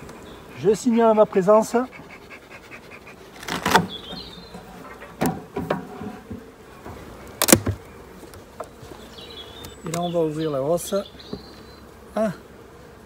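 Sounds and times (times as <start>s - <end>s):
metal roof scraping against wood: 3.3s - 7.1s.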